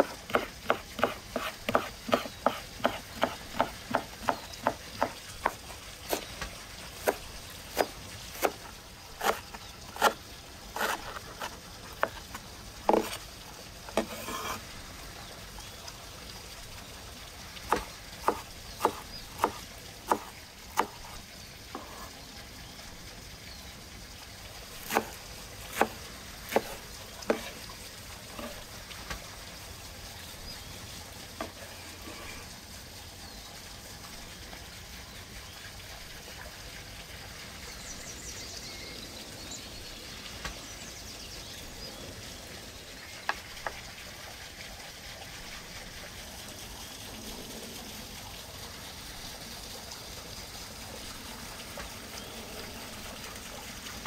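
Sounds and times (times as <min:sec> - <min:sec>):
cleaver chopping on wooden board: 0:00.0 - 0:08.6, 0:09.2 - 0:10.2, 0:12.9 - 0:13.2, 0:17.7 - 0:21.2, 0:24.8 - 0:27.6
running water trickle: 0:00.0 - 0:54.0.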